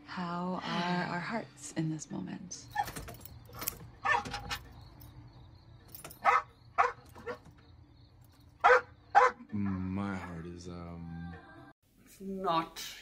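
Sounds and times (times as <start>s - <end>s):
dog barking: 4.0s - 4.4s, 6.2s - 7.5s, 8.6s - 9.9s.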